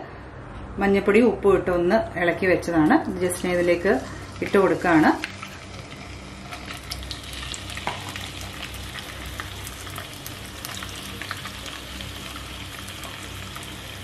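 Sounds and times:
prawns sizzling in hot oil: 0:03.0 - 0:14.0.

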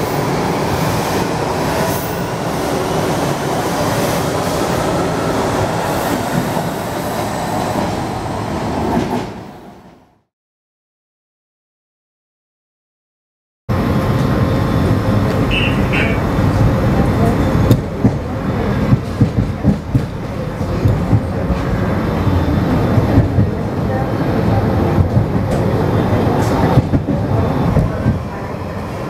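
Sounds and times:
train wheels rumbling: 0:13.8 - 0:29.0.

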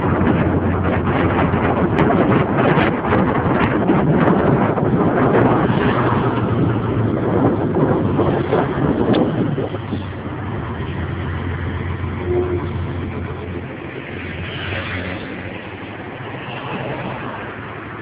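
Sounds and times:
bus diesel engine droning: 0:06.4 - 0:16.2.

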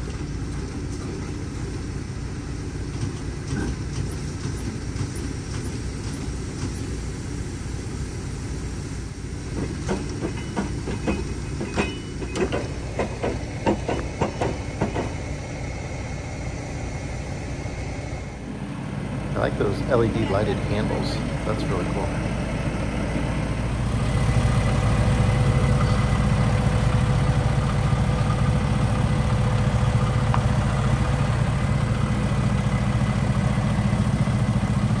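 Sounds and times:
heavy vehicle engine idling: 0:00.0 - 0:35.0
clanks and rattles: 0:02.8 - 0:07.0, 0:09.5 - 0:15.3.

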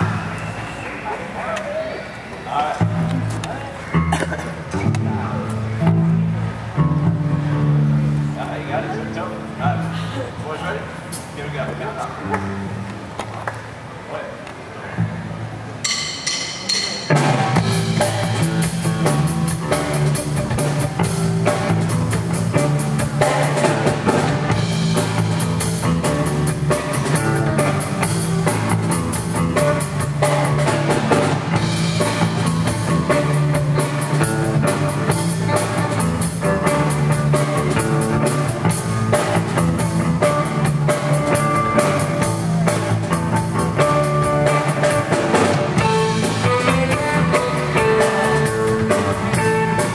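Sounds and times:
electric bass line: 0:02.8 - 0:10.0, 0:17.1 - 0:49.9
electric guitar: 0:02.8 - 0:10.4, 0:11.0 - 0:13.8, 0:17.1 - 0:49.9
drum kit beat: 0:15.8 - 0:49.9.

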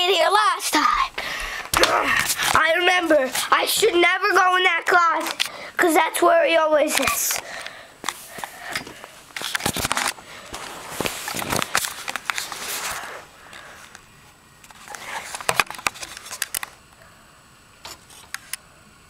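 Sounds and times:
camera handling noise: 0:09.4 - 0:12.8, 0:14.6 - 0:16.8.

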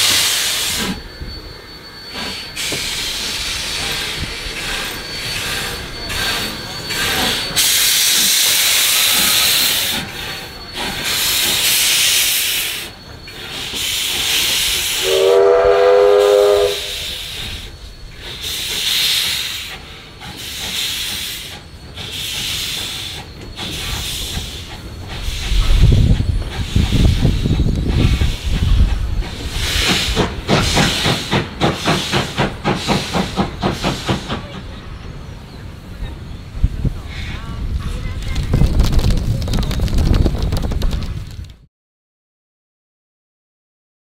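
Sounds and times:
steam locomotive exhaust hissing: 0:00.0 - 0:38.6
steam whistle blast: 0:14.4 - 0:17.7.

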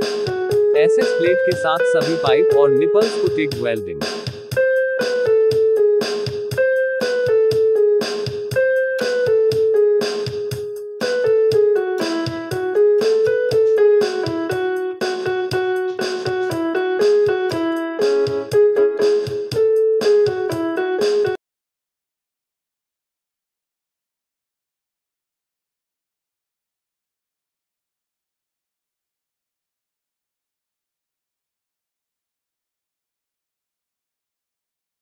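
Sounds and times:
background music with quick notes: 0:00.0 - 0:21.4.

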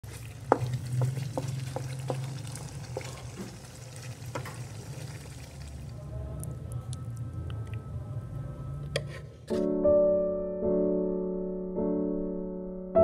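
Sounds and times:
curry sizzling in pan: 0:00.0 - 0:05.9.

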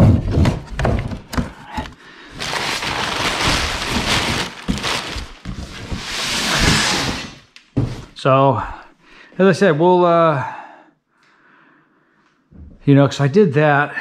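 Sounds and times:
packing paper crumpling: 0:01.6 - 0:06.7.

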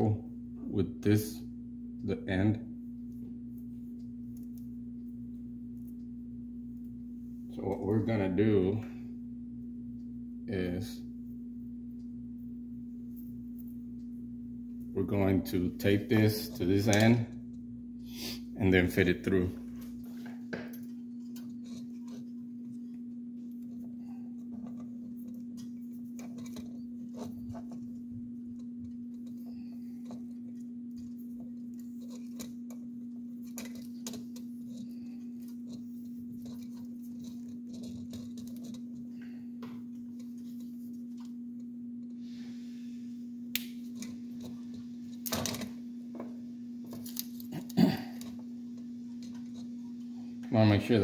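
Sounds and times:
steady low hum: 0:00.0 - 0:51.0
hands handling wires and tape: 0:19.7 - 0:42.2, 0:43.5 - 0:50.3.

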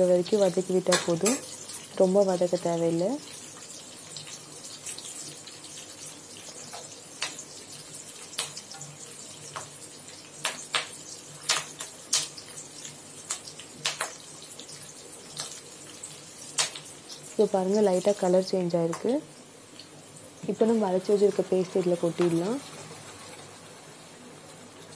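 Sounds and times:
onions frying in oil: 0:00.0 - 0:24.9
sharp crackles and pops: 0:04.1 - 0:08.8, 0:09.4 - 0:17.4.

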